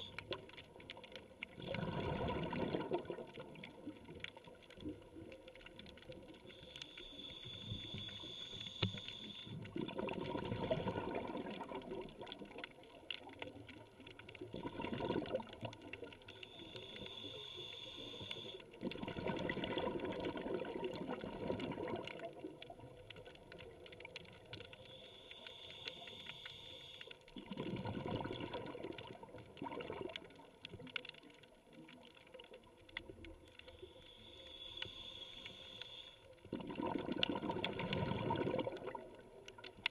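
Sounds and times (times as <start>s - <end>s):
exhaust bubbles bubbling: 1.5s - 3.9s, 9.6s - 12.6s, 14.4s - 16.1s, 18.8s - 22.9s, 27.4s - 30.4s, 36.5s - 39.4s
regulator breathing hiss: 6.6s - 9.6s, 16.4s - 18.7s, 24.8s - 27.2s, 33.6s - 36.3s.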